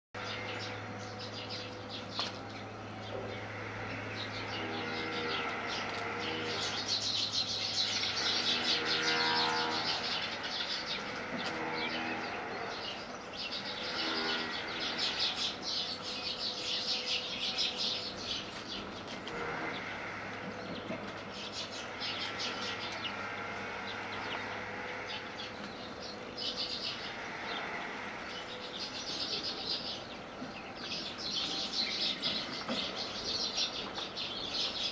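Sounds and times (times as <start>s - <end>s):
birds chirping: 0.2s - 34.9s.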